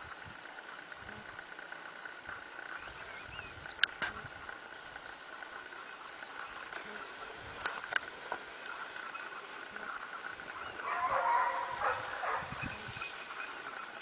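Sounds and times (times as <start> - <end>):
dog barking: 10.8 - 12.6.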